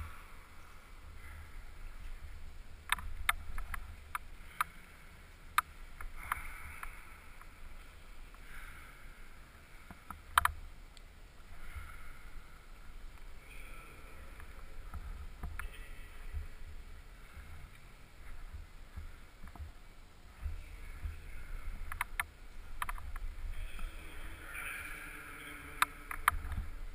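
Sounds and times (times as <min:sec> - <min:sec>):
clicks on climbing holds: 0:02.8 - 0:04.8, 0:09.8 - 0:11.9, 0:20.4 - 0:23.9, 0:25.5 - 0:26.9.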